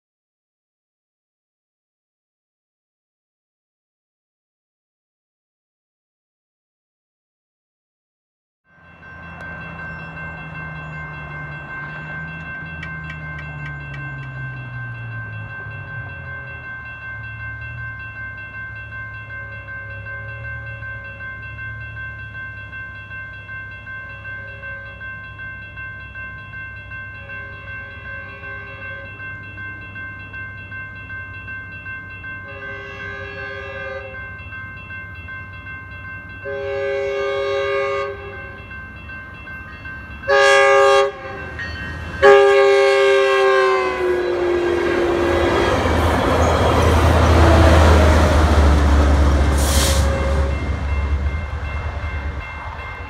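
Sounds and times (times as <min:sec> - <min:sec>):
crossing bell ringing: 0:08.7 - 0:53.0
train passing rumble: 0:08.7 - 0:53.0
train horn blasts: 0:24.4 - 0:25.0, 0:27.2 - 0:29.3, 0:32.4 - 0:34.2, 0:36.4 - 0:38.6, 0:40.3 - 0:41.5, 0:42.2 - 0:51.0.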